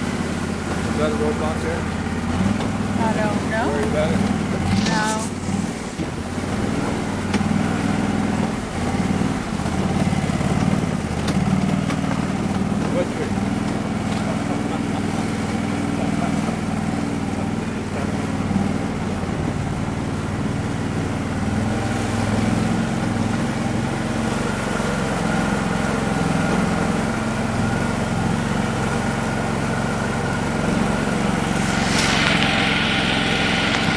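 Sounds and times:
diesel engine running: 0.0s - 33.9s
rush of noise: 3.5s - 8.8s, 30.1s - 33.9s.

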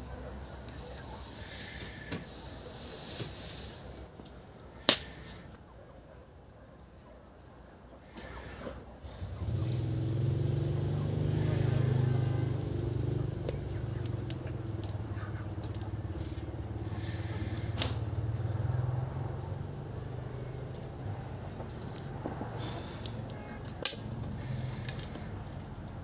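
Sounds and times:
motor engine droning: 9.0s - 26.0s.

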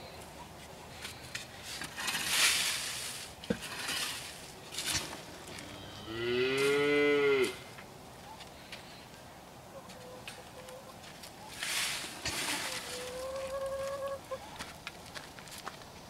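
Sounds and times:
cow mooing: 5.6s - 7.7s.

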